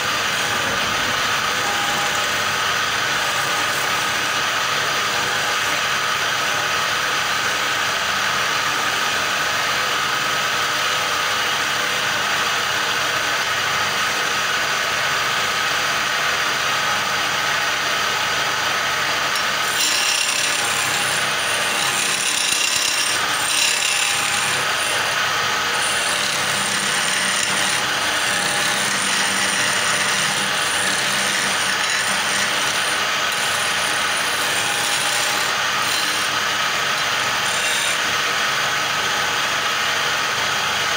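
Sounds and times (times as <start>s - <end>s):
wood lathe chisel cutting: 0.0s - 6.1s, 18.2s - 38.7s.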